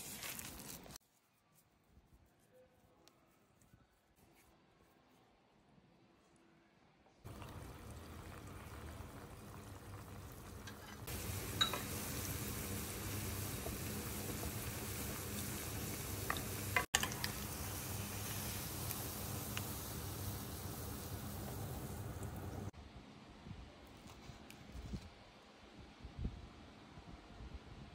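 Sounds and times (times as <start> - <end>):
food deep-frying in oil: 7.2 - 22.7
oil popping: 7.3 - 21.6.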